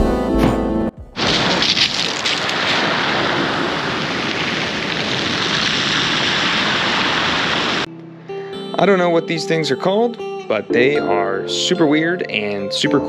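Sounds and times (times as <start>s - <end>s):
stones rattling: 1.2s - 5.9s
surf on cobble beach: 1.2s - 7.9s.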